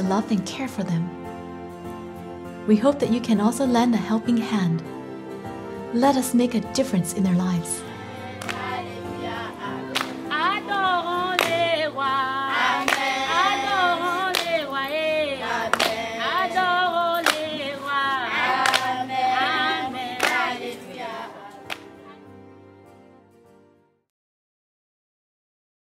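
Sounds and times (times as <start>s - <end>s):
girls singing in unison: 7.8s - 21.8s
hand clap: 8.4s - 9.0s, 9.8s - 10.6s, 11.3s - 11.8s, 12.6s - 14.8s, 15.5s - 16.2s, 17.2s - 17.7s, 18.4s - 20.8s, 21.6s - 22.0s.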